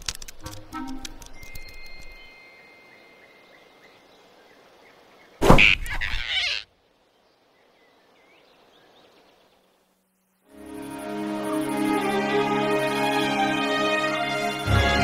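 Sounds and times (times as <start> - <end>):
bird chirps: 1.2 - 13.0.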